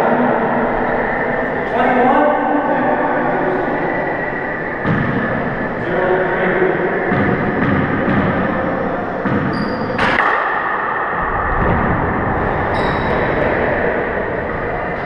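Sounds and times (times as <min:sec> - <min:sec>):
room noise: 0:00.0 - 0:15.0
sneaker squeaks on hardwood: 0:09.3 - 0:10.1.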